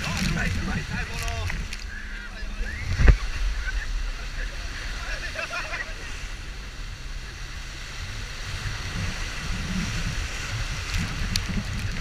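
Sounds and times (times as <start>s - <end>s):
water rushing and spraying: 0.0s - 12.0s
wind rumble on microphone: 0.0s - 12.0s.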